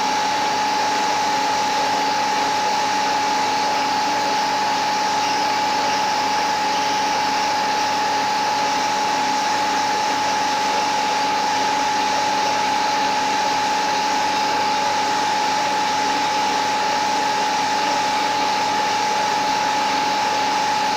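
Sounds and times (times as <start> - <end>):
high-pitched machine whine: 0.0 - 12.3.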